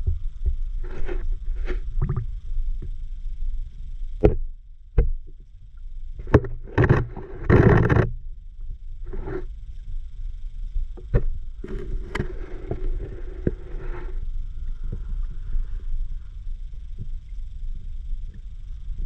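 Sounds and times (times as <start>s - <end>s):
low underwater rumble: 0.0s - 19.0s.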